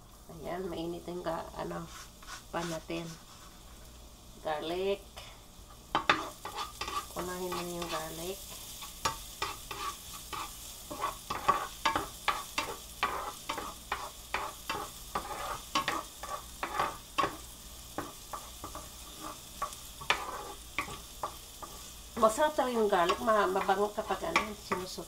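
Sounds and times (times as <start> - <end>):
garlic sizzling in a frying pan: 0.0 - 25.0
spatula scraping and tapping a pan: 5.9 - 22.4, 23.0 - 25.0.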